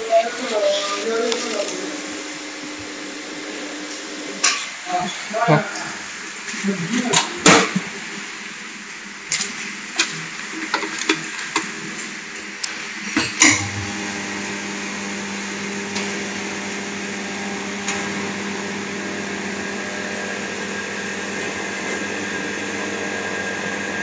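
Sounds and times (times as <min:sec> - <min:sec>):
vacuum pump humming and hissing: 0:00.0 - 0:24.0.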